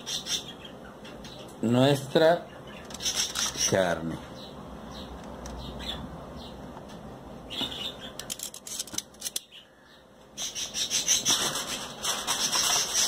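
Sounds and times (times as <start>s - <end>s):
steady rustling: 11.1s - 13.0s
aluminum foil crinkling: 11.3s - 13.0s.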